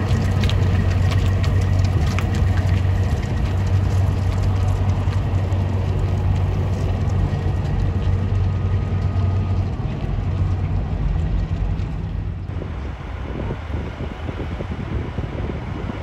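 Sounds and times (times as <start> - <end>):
truck diesel engine drone: 0.0 - 16.0.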